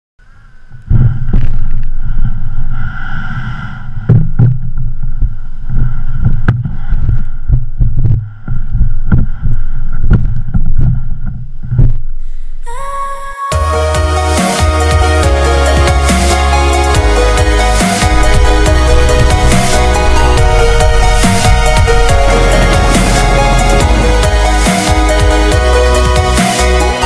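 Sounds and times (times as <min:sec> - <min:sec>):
low rumble: 0:00.2 - 0:12.6, 0:16.9 - 0:27.0
electronic music: 0:13.5 - 0:27.0
wind buffeting microphone: 0:18.1 - 0:25.5.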